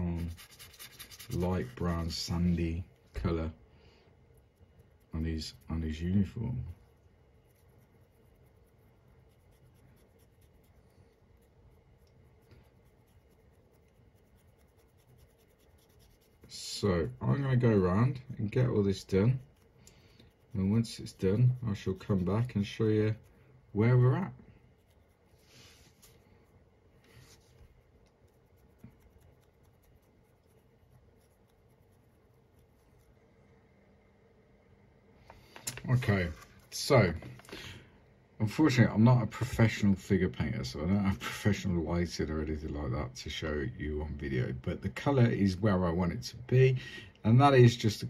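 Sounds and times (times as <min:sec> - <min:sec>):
brush bristles scratching: 0:00.0 - 0:03.6, 0:04.2 - 0:33.3, 0:35.8 - 0:37.4.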